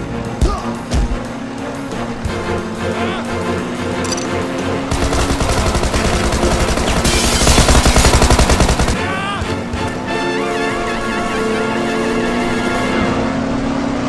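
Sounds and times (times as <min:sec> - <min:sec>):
background music: 0:00.0 - 0:14.0
automatic gunfire burst: 0:04.9 - 0:09.0.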